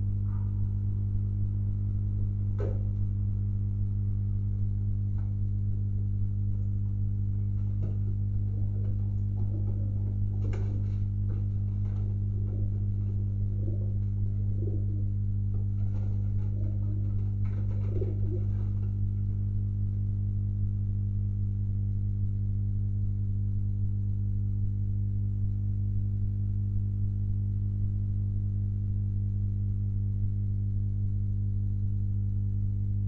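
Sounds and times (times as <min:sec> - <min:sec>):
low electrical hum: 0:00.0 - 0:33.0
pigeon wing flaps: 0:07.5 - 0:19.0
pigeons cooing: 0:08.5 - 0:10.8, 0:12.3 - 0:15.2, 0:15.8 - 0:18.8.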